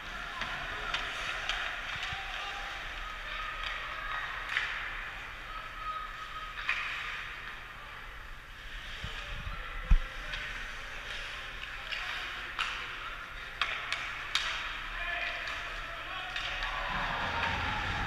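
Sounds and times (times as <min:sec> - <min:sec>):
hockey sticks and puck clacking: 0:00.0 - 0:05.4, 0:06.5 - 0:07.6, 0:10.1 - 0:18.0.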